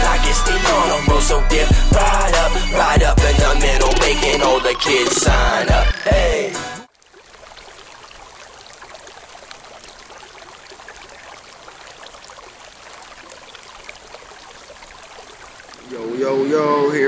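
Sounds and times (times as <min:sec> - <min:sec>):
running water trickling: 0:06.9 - 0:17.0.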